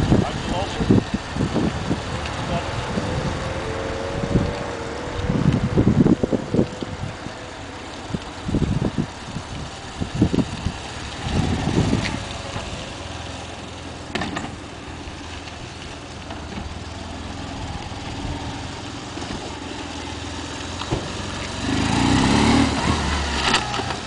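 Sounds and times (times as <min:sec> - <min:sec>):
wind buffeting microphone: 0:00.0 - 0:13.5
motorcycle engine running: 0:00.0 - 0:15.2, 0:15.8 - 0:24.0.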